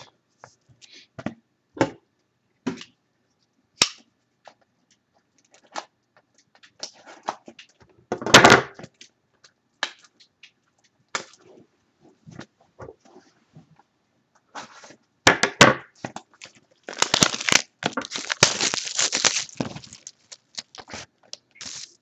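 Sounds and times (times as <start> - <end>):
cardboard box rustling: 16.9 - 22.0.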